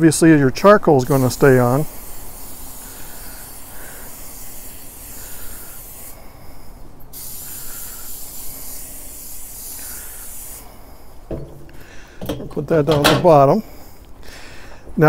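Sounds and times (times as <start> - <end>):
aerosol oil spray hissing: 1.0 - 11.7.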